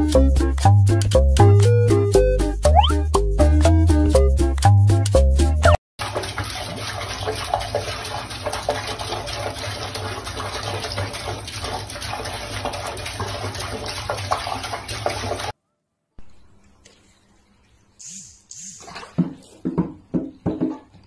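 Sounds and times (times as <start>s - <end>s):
tap water splashing into sink: 6.0s - 15.5s, 18.8s - 21.0s.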